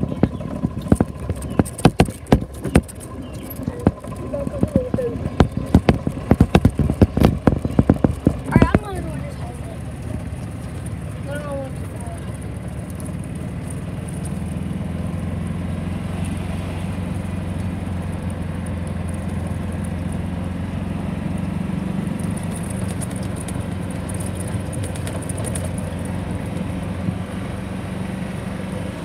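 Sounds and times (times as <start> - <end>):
golf cart motor drone: 0.0 - 29.0
road and wind noise: 0.0 - 29.0
light rattles: 21.3 - 27.6.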